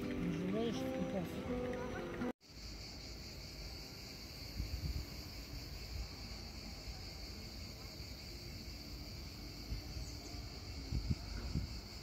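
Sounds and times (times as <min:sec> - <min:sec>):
background music: 0:00.0 - 0:02.3
insects droning in trees: 0:00.0 - 0:12.0.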